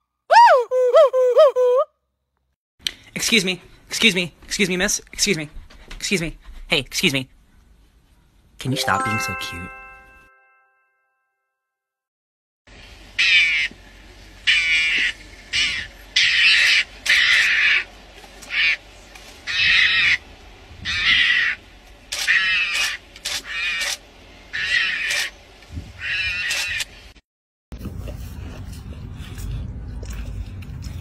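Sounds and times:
animal harsh rasping calls: 14.5 - 17.9, 18.5 - 18.8, 19.4 - 20.2, 20.8 - 25.4, 26.0 - 26.9.

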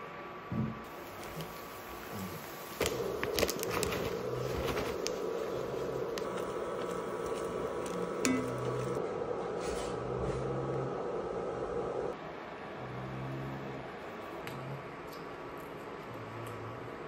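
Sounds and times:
induction hob hum: 0.0 - 15.4
paper rustling: 2.6 - 8.0.

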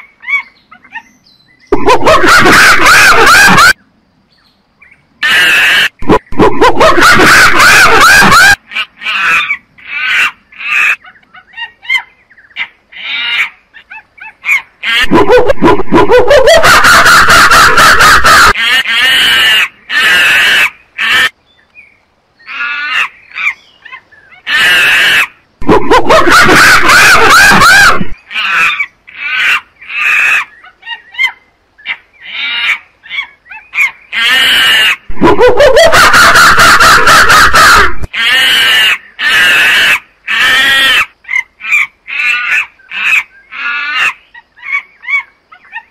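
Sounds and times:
monkey calling loudly: 1.7 - 3.8, 5.2 - 21.4, 22.5 - 45.9.

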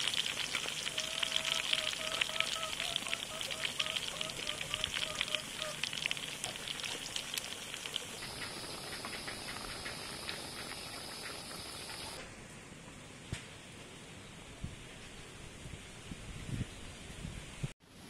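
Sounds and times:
chicken deep-frying with crackling: 0.0 - 12.2.

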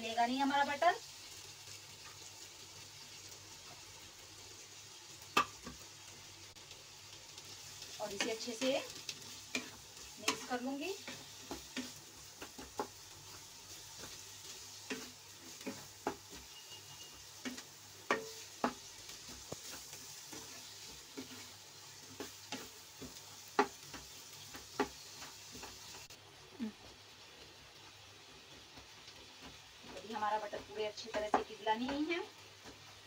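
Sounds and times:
onions sizzling in butter: 0.0 - 33.0
spatula scraping a pan: 7.5 - 26.1.

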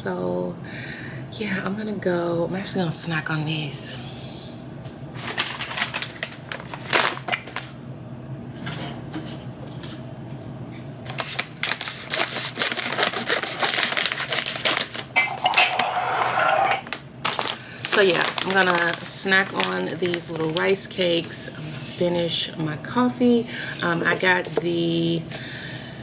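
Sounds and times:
plastic snack bag crinkling: 5.2 - 7.7, 11.1 - 16.0, 16.8 - 21.4
scissors cutting plastic bag: 11.1 - 15.8, 17.2 - 21.3.

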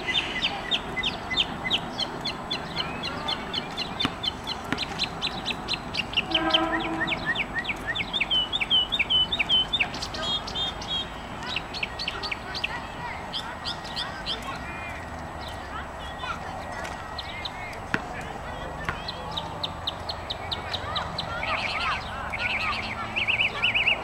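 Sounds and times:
songbird chirping: 0.0 - 24.0
low-pitched bird call: 5.0 - 14.4.

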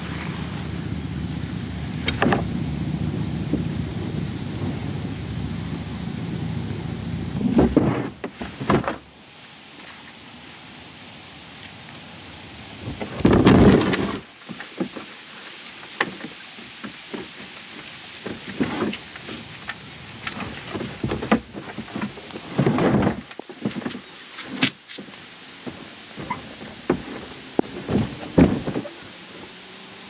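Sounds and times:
low rumbling bumps: 0.0 - 9.2, 12.3 - 15.0, 16.6 - 24.1, 25.0 - 29.6
kayak clicks and rattles: 2.0 - 2.6, 11.6 - 29.0.

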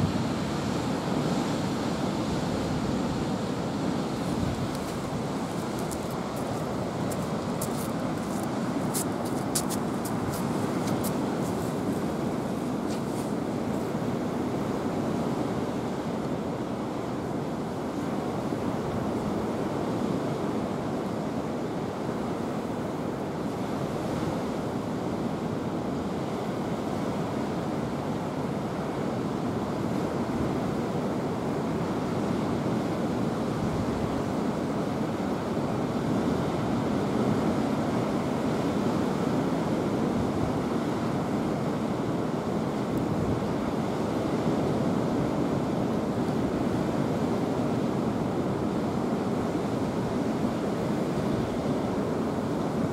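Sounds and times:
steady rushing outdoor noise: 0.0 - 25.6.

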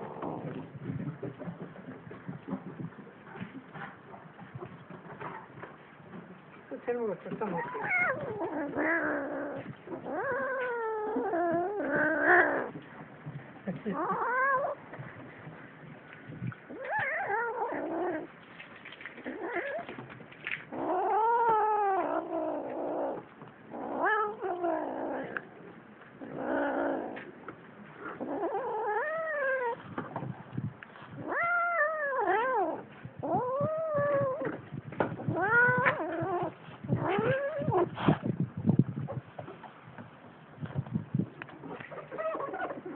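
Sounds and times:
cats yowling in a fight: 7.5 - 12.8, 13.8 - 14.8, 16.6 - 18.4, 19.2 - 25.5, 28.1 - 30.0, 31.1 - 38.2, 41.6 - 42.9.

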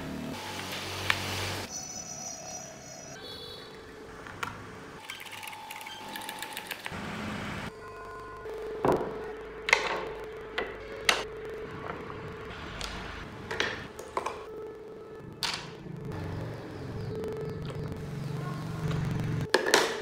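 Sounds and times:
wooden parts knocking on workbench: 8.8 - 11.2.

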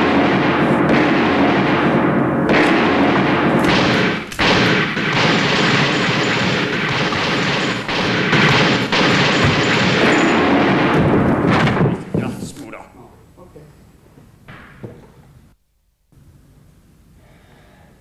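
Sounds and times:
gunfire with heavy booms: 0.0 - 12.5.

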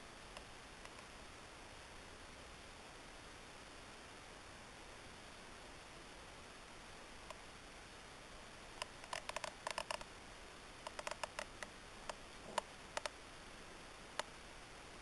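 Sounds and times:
faint steady hiss: 0.0 - 15.0
rapid light clicks: 0.3 - 1.2, 8.8 - 10.1, 10.8 - 13.2, 14.1 - 14.4.

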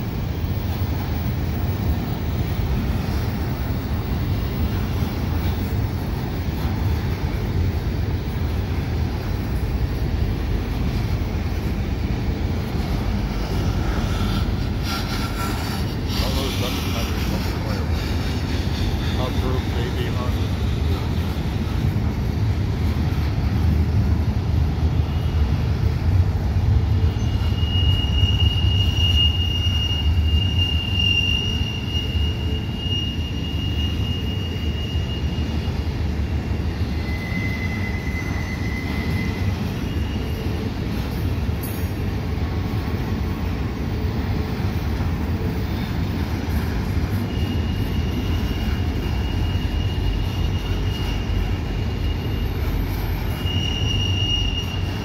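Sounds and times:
freight train rumbling past: 0.0 - 55.0
high wheel squeals: 12.4 - 21.7, 24.9 - 25.6, 26.9 - 42.0, 45.4 - 55.0.

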